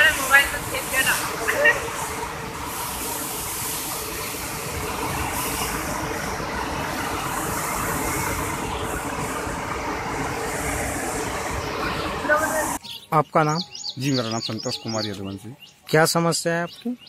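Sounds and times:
roar of rushing water: 0:00.0 - 0:12.8.

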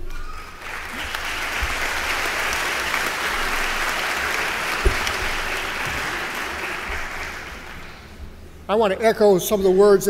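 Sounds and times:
audience applauding: 0:00.0 - 0:08.2
low thump: 0:04.8 - 0:05.5.

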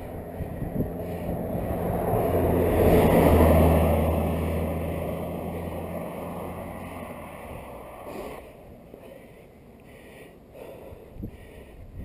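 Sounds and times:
wind on microphone: 0:00.0 - 0:04.4
vehicle passing: 0:00.0 - 0:11.8.

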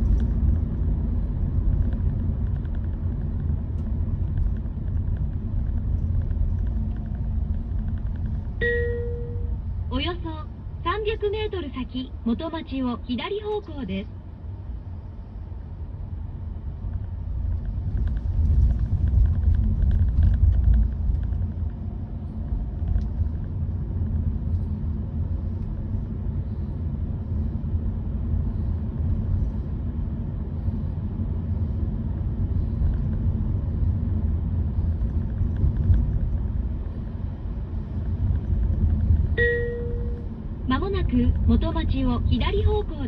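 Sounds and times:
road and tyre rumble in car: 0:00.0 - 0:43.0.

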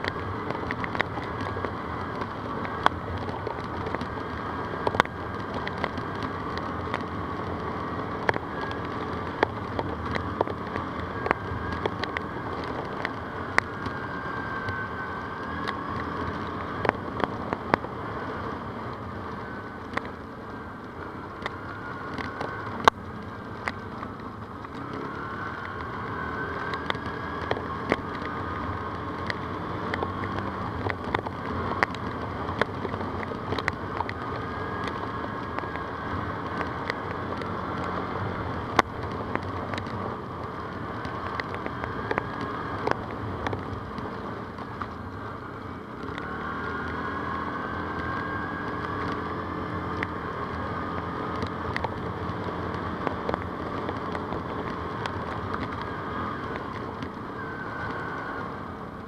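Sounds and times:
atv engine running: 0:00.0 - 0:59.0
sharp clicks and knocks: 0:51.0 - 0:57.2.

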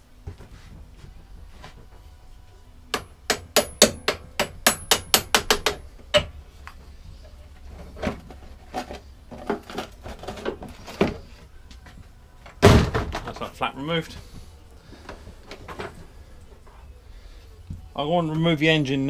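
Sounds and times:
hammer striking metal punch: 0:02.9 - 0:06.4.

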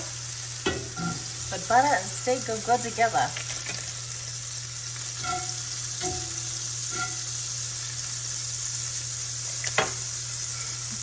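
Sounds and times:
butter sizzling in a skillet: 0:00.0 - 0:11.0
metal tongs clinking on pan: 0:05.2 - 0:07.4.

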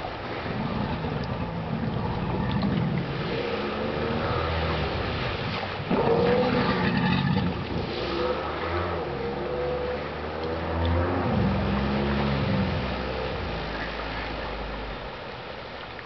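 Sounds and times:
jet ski engine revving: 0:00.0 - 0:15.2.

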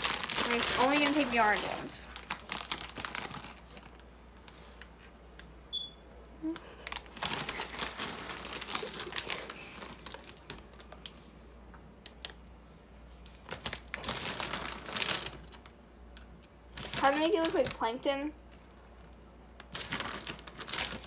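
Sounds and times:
plastic snack bag crinkling: 0:00.0 - 0:04.1, 0:06.6 - 0:12.5, 0:13.3 - 0:15.8, 0:16.7 - 0:21.0.

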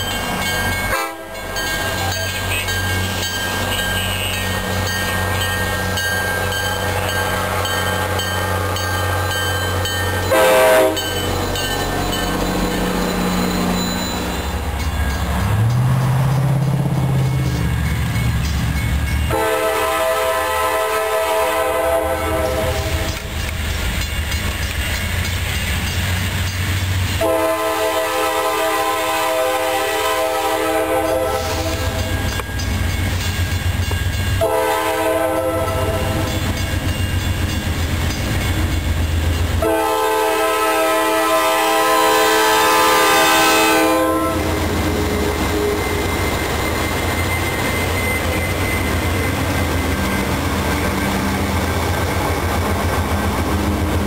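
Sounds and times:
locomotive air horn blasts: 0:00.9 - 0:01.4, 0:10.3 - 0:11.1, 0:19.3 - 0:23.1, 0:27.2 - 0:31.8, 0:34.4 - 0:36.1, 0:39.6 - 0:44.6.

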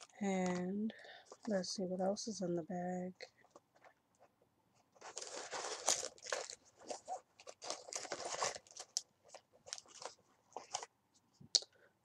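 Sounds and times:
cosmetic bag crinkling and rustling: 0:04.9 - 0:10.9.

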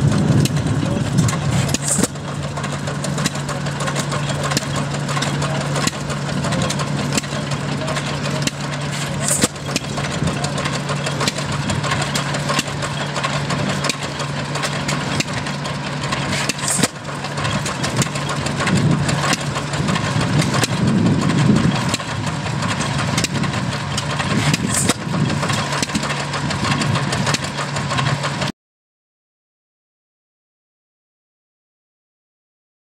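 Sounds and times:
stationary engine exhaust pops: 0:00.0 - 0:28.5.

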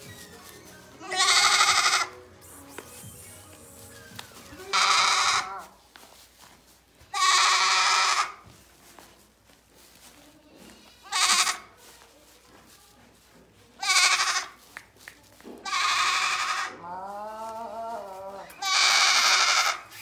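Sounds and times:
goat kid bleating: 0:00.1 - 0:02.2, 0:04.2 - 0:05.8, 0:07.1 - 0:08.4, 0:10.9 - 0:11.8, 0:13.8 - 0:14.6, 0:15.6 - 0:20.0.

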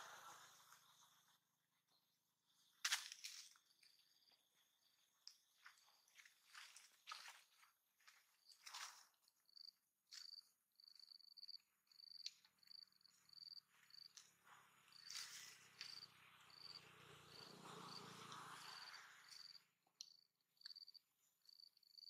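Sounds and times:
insect chirping: 0:02.5 - 0:06.6, 0:08.4 - 0:22.0
dry leaves crackling: 0:02.8 - 0:03.6, 0:15.0 - 0:17.5.

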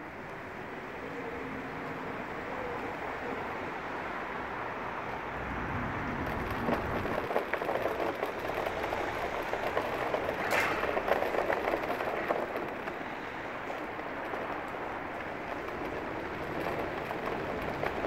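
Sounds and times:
hoverboard wheels rolling on paving: 0:00.0 - 0:18.0.

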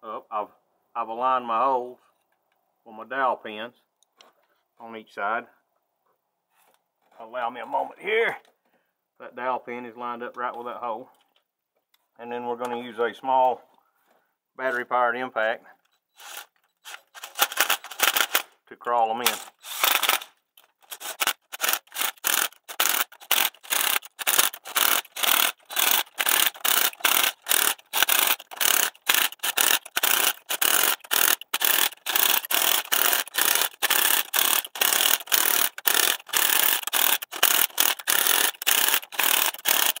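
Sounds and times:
cordless impact driver hammering: 0:19.3 - 0:40.0.

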